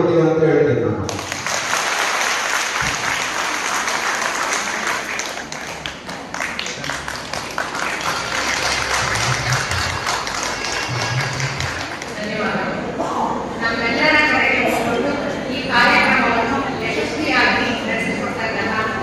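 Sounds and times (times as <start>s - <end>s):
audience applauding: 1.1s - 12.5s.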